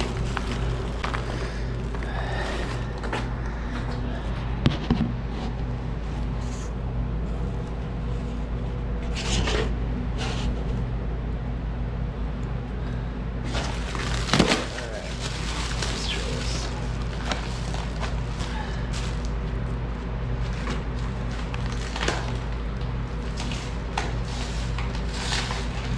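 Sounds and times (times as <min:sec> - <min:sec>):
cardboard and plastic rustling: 0:00.0 - 0:06.7, 0:13.5 - 0:25.9
steady low hum: 0:00.0 - 0:25.9.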